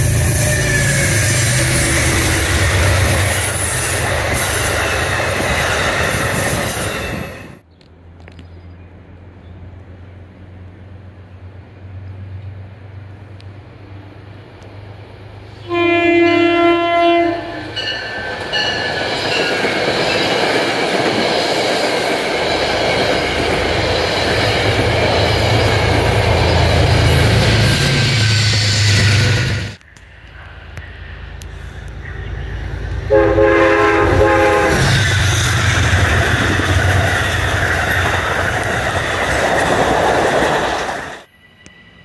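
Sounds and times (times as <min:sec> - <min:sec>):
train wheels on rails: 0:00.0 - 0:08.5, 0:16.3 - 0:42.0
diesel locomotive drone: 0:00.0 - 0:42.0
train horn: 0:15.6 - 0:18.0, 0:33.1 - 0:35.0.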